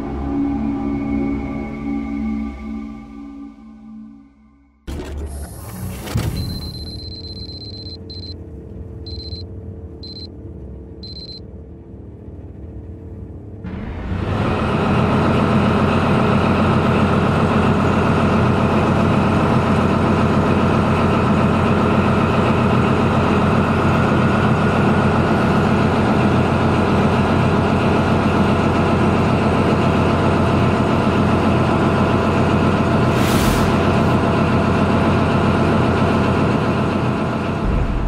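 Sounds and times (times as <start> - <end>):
diesel engine idling: 13.7 - 33.1.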